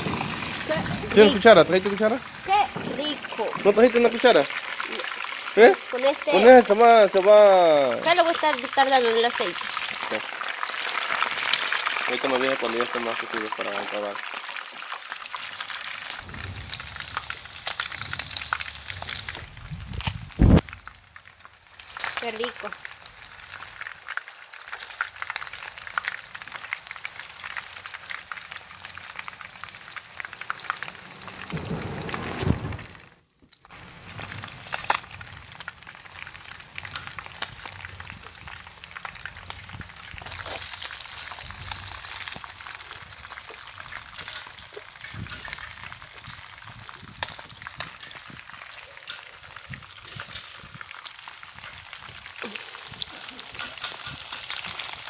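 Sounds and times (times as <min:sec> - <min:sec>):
oil sizzling around frying fish: 0:00.0 - 0:55.0
low rumble: 0:16.2 - 0:20.7, 0:30.5 - 0:33.1.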